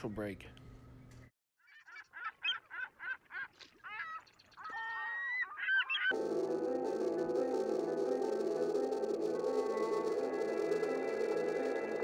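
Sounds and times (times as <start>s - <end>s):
music: 6.1s - 12.0s.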